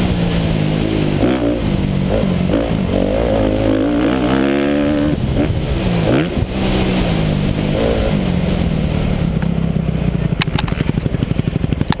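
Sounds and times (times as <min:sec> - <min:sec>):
motocross bike engine revving: 0:00.0 - 0:12.0.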